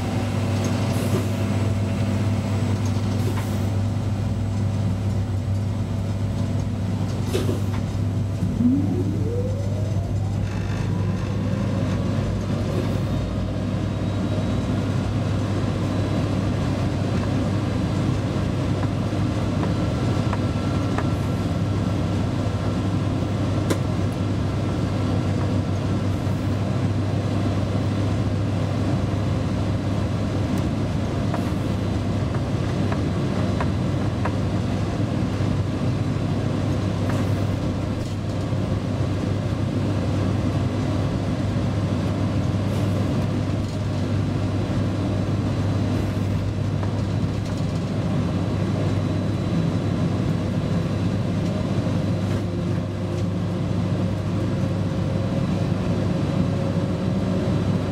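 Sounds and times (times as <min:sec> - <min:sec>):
locomotive wheels on rails: 0:00.0 - 0:57.9
deep hum: 0:08.0 - 0:12.9.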